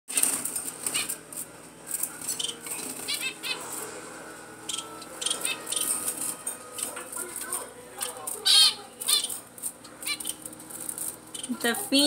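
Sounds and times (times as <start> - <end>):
finches fluttering wings: 0.1 - 3.9.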